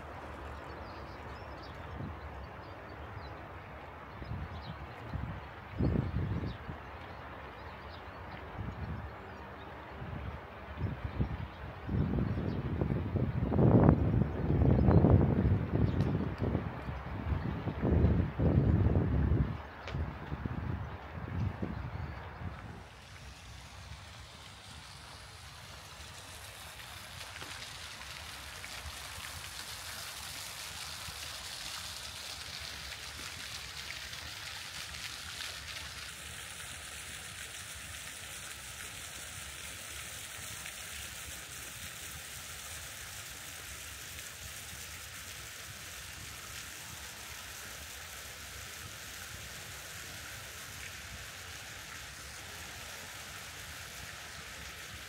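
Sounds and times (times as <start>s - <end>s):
water splashing down cascade: 0.0s - 2.0s, 22.1s - 55.0s.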